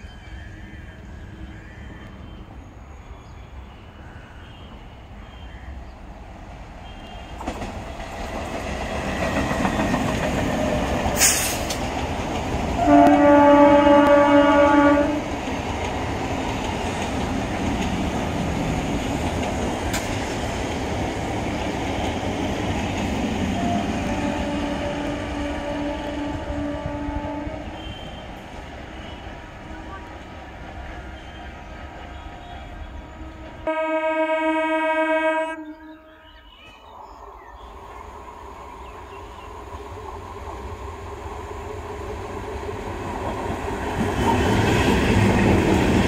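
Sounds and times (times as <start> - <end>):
train rumble and wheel clatter: 0.0 - 46.0
train horn blast: 12.8 - 15.3, 23.5 - 28.4, 33.0 - 36.4.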